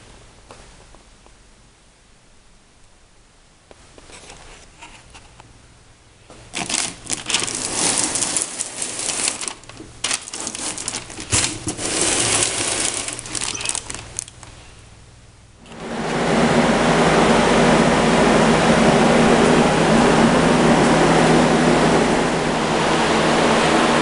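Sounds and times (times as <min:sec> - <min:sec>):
crinkling handling rustle: 0:06.4 - 0:14.7.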